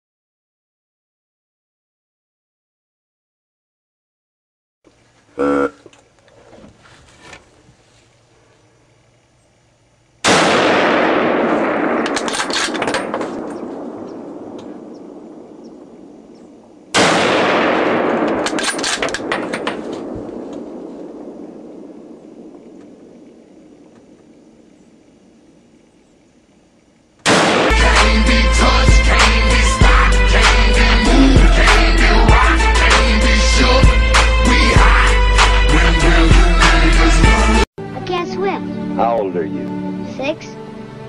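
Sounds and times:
short pitched call: 0:05.3 - 0:05.9
gunshots with long echo: 0:10.2 - 0:24.7, 0:27.2 - 0:37.0.

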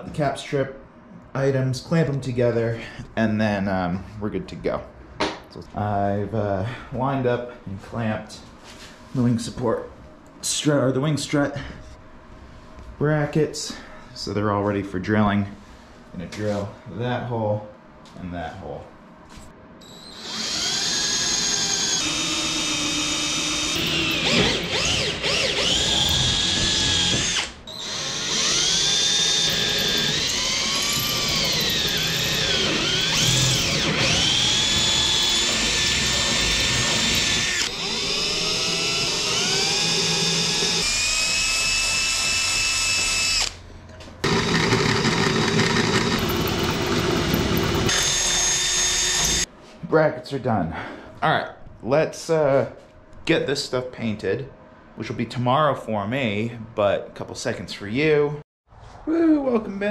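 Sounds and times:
cordless drill boring metal: 0:19.8 - 0:43.6, 0:44.2 - 0:49.5.

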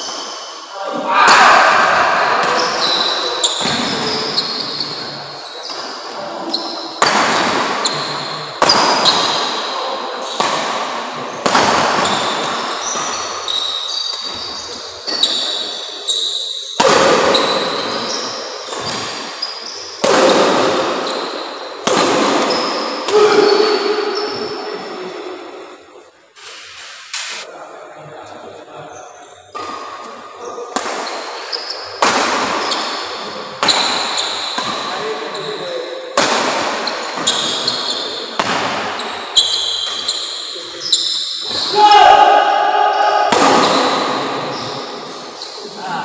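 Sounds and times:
shoe squeaks on court: 0:02.4 - 0:07.0, 0:12.0 - 0:16.7, 0:31.1 - 0:32.0, 0:36.8 - 0:38.3, 0:39.0 - 0:41.7
rackets hitting shuttlecock: 0:06.9 - 0:09.7, 0:10.3 - 0:15.6, 0:16.8 - 0:24.2, 0:30.7 - 0:35.1, 0:36.2 - 0:40.4, 0:43.2 - 0:45.0.

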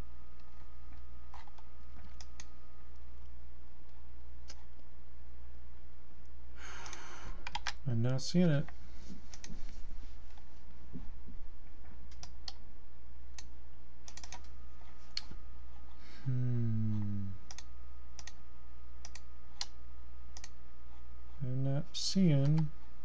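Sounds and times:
steady low hum: 0:00.0 - 0:23.0
computer keyboard typing: 0:14.1 - 0:14.5
low voice murmur: 0:16.2 - 0:17.4.

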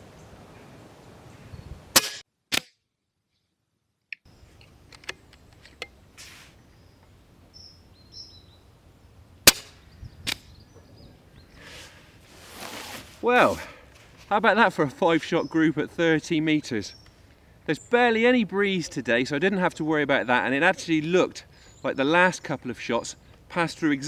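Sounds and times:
air rifle shot cracks: 0:01.9 - 0:02.7, 0:09.4 - 0:10.5.

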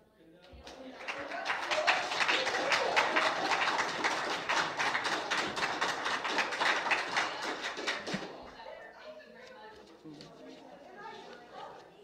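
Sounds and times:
audience applauding: 0:00.6 - 0:08.6.

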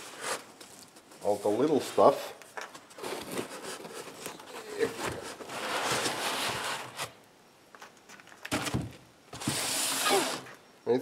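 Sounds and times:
foam scraping against cardboard: 0:03.0 - 0:07.2.

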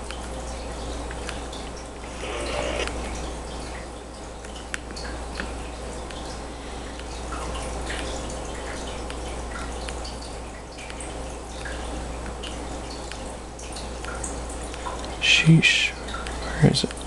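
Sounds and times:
amplifier mains hum and hiss: 0:01.2 - 0:04.0
faint light ticks: 0:06.9 - 0:07.1.

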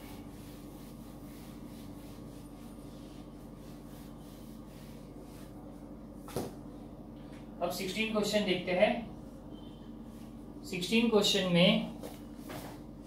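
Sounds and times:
duster wiping a whiteboard: 0:00.0 - 0:06.4.

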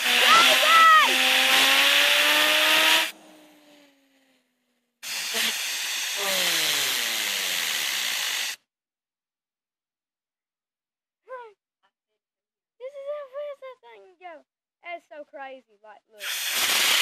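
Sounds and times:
compressed air hissing: 0:05.0 - 0:08.6, 0:16.2 - 0:17.0.

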